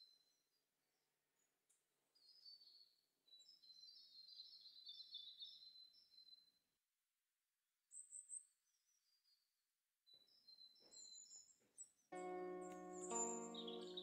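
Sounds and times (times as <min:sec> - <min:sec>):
small birds chirping: 0:02.1 - 0:06.6, 0:07.9 - 0:09.5, 0:10.1 - 0:14.0.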